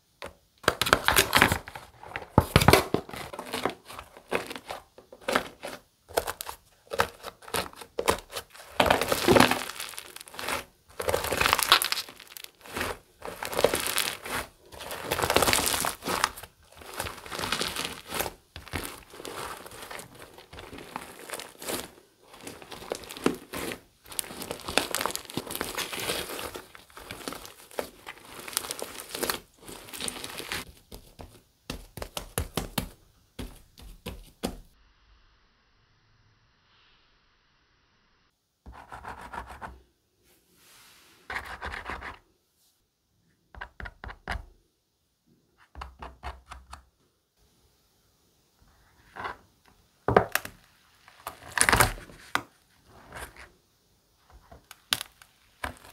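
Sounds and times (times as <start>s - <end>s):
slime crust crackling: 2.4s - 34.8s, 50.3s - 53.4s, 54.4s - 55.9s.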